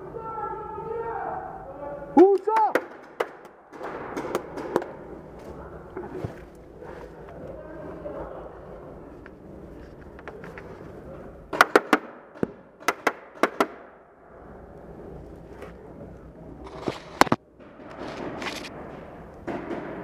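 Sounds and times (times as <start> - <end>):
paintballs hitting: 2.3 - 5.0, 11.5 - 13.9
paintball markers shooting: 11.5 - 13.9.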